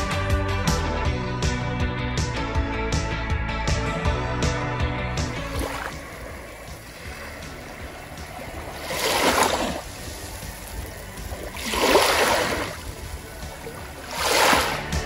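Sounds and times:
small waves washing on sand: 0:05.4 - 0:15.0.

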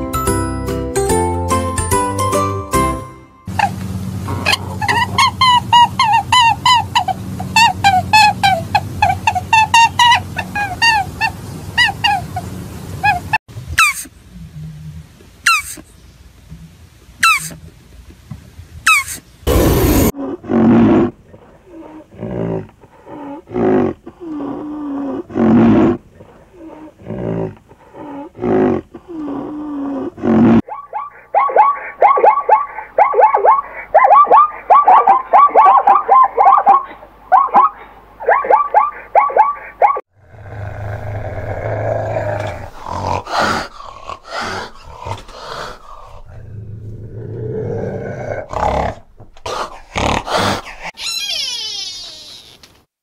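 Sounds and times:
cat growling: 0:40.2 - 0:51.1
rhinoceros breathy calls: 0:42.1 - 0:46.4
cat calling: 0:51.0 - 0:52.7.

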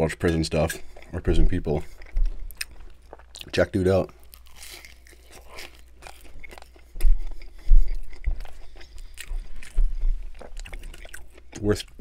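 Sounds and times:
chewing with crisp crackles: 0:00.0 - 0:12.0
dull low thumps: 0:07.0 - 0:08.6, 0:09.2 - 0:10.7.

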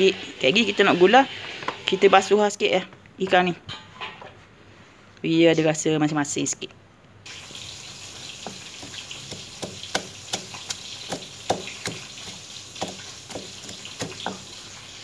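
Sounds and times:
stone pestle pounding in mortar: 0:08.4 - 0:14.5.

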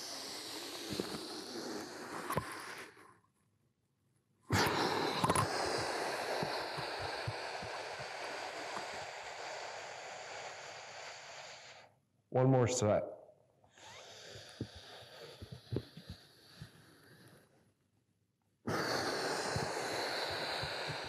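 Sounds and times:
long hissing breath: 0:00.0 - 0:03.2, 0:04.5 - 0:12.0, 0:13.7 - 0:17.8, 0:18.6 - 0:21.0
man breathing slowly: 0:04.5 - 0:12.0, 0:13.6 - 0:17.9, 0:18.7 - 0:21.0.

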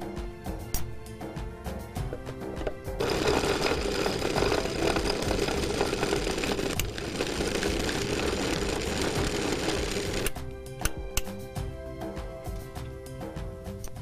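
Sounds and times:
electric mixer grinder running: 0:02.6 - 0:10.5.

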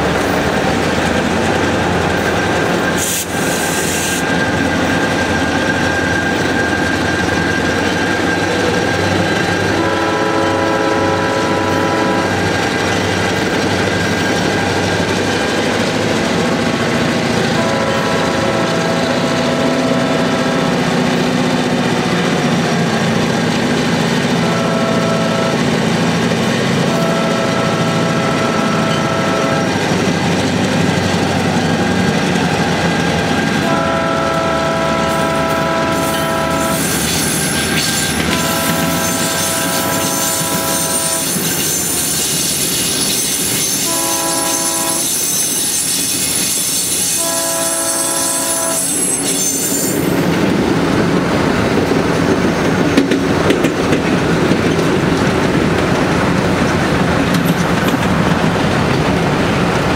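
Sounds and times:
locomotive engine running: 0:00.0 - 0:59.9
train rolling: 0:00.0 - 0:59.9
locomotive chime horn blasts: 0:04.0 - 0:12.9, 0:17.3 - 0:21.3, 0:24.2 - 0:26.1, 0:26.7 - 0:30.1, 0:33.4 - 0:50.3
high-pitched wheel squeal: 0:35.0 - 0:50.3.

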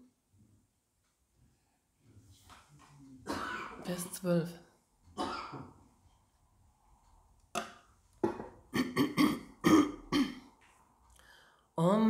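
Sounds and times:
woman clearing her throat: 0:03.3 - 0:03.9, 0:05.2 - 0:05.8, 0:08.7 - 0:10.5.

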